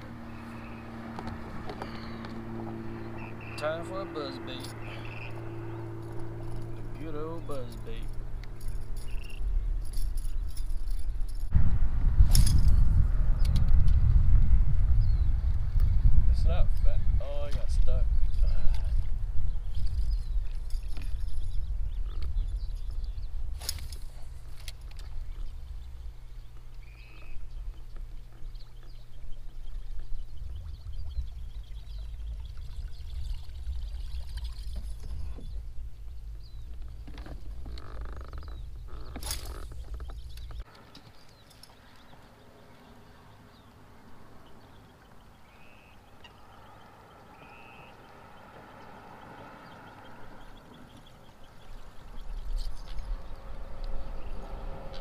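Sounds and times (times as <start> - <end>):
distant bird chirps: 0.0 - 11.5, 18.3 - 55.0
low rumble: 0.0 - 40.7
open water ambience: 0.0 - 55.0
faint bird chirps: 4.8 - 5.8, 25.3 - 35.6, 44.5 - 48.2
high steady bird call: 45.4 - 48.2.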